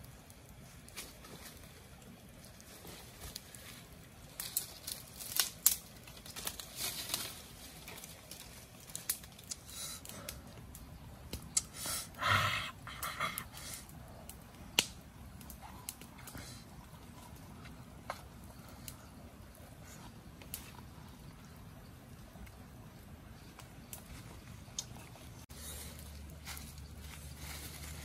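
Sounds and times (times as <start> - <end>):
dry forest litter rustling: 0.5 - 28.0.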